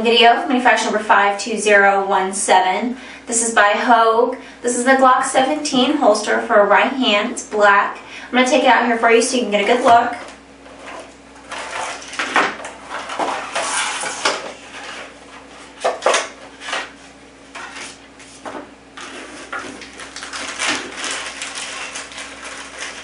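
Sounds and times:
plastic bag rustling: 10.7s - 23.0s
plastic packaging crackling: 19.0s - 23.0s.

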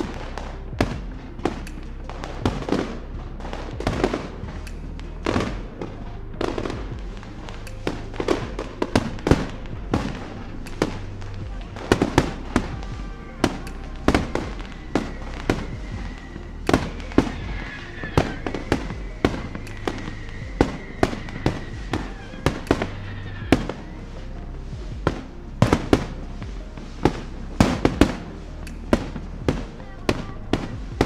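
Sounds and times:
fireworks bangs and crackles: 0.0s - 31.0s
high steady whistle: 12.1s - 24.5s.

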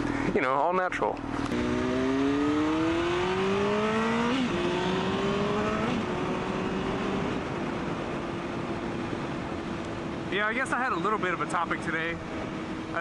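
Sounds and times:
motorcycle engine accelerating: 1.2s - 10.4s, 11.0s - 13.0s
wind rush: 4.5s - 13.0s.

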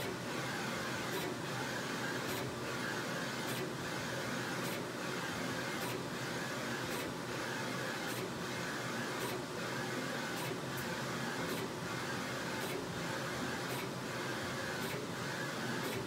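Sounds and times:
printer carriage whirring: 0.0s - 16.0s.

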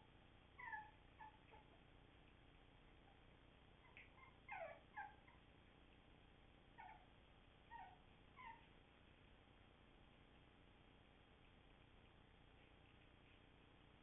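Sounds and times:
puppies whimpering: 3.8s - 5.4s.

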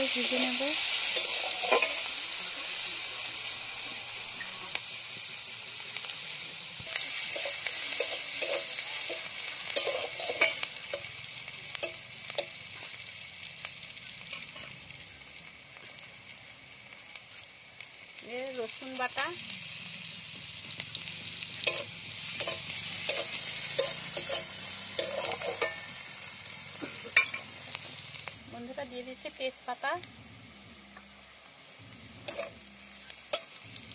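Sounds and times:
onions sizzling in oil: 0.0s - 33.9s
metal spatula scraping pan: 1.1s - 2.1s, 6.9s - 11.1s, 21.6s - 26.0s, 32.2s - 33.6s.

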